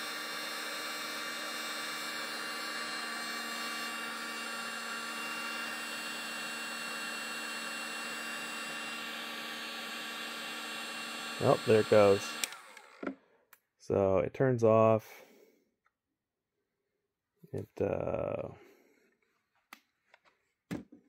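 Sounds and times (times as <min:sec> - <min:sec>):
heat gun fan whirring: 0:00.0 - 0:13.2.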